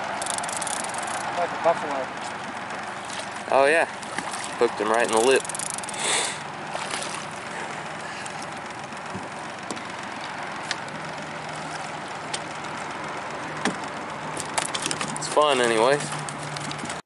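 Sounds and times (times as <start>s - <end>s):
sharp clicks: 0.2s - 1.3s, 5.0s - 6.0s.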